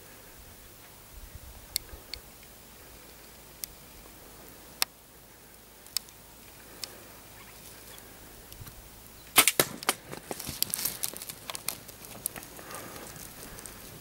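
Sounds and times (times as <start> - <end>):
sharp ticks: 5.8 - 7.0
arrow striking animal: 9.4 - 10.0.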